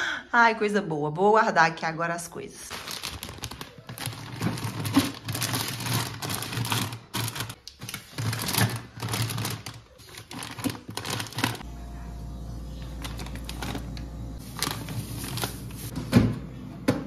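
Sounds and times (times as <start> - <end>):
plastic bags rustling: 2.6 - 11.7, 12.7 - 16.2
steady low hum: 11.6 - 15.7.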